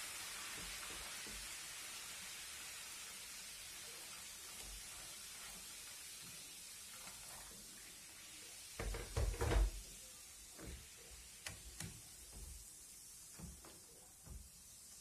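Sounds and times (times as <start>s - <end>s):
kettle clunking on counter: 8.8s - 9.7s.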